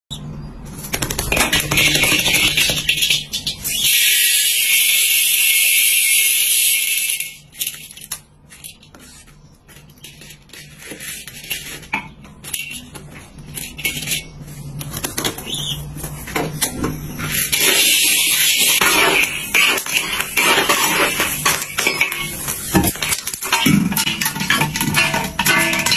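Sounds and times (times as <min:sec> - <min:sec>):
spatula stirring popcorn kernels in wok: 0:17.4 - 0:25.9.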